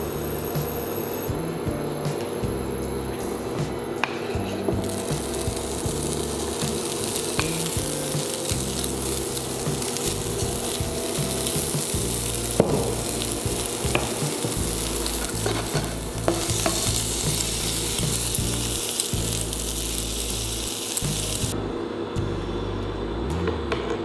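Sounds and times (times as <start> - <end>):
meat sizzling in a frying pan: 4.8 - 21.6
wooden spoon stirring: 5.3 - 18.4.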